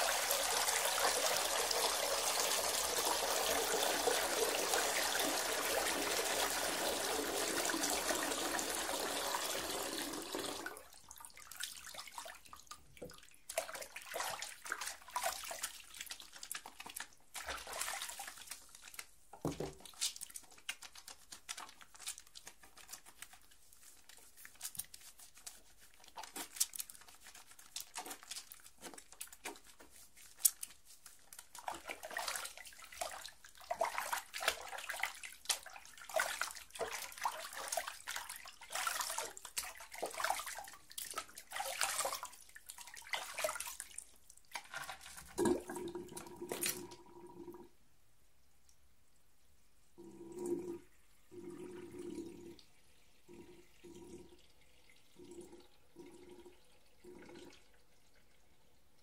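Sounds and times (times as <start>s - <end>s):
water splashing in basin: 0.0s - 23.2s, 24.4s - 47.1s.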